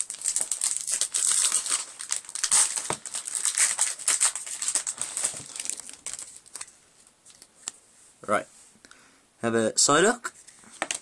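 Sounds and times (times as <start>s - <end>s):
foil wrapper crinkling: 0.0s - 7.5s.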